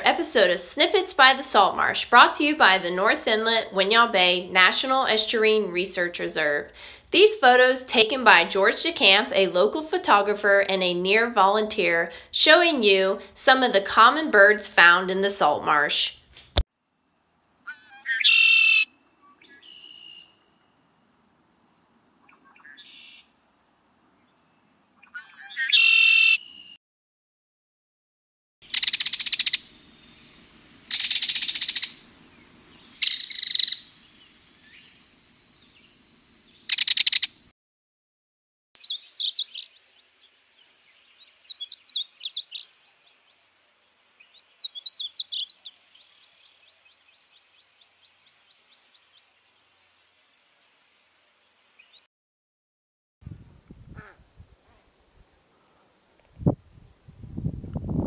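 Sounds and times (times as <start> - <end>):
blackbird calling and singing: 17.7 - 20.4, 22.2 - 23.2, 25.0 - 26.8, 30.2 - 37.3, 38.8 - 43.2, 44.2 - 49.6.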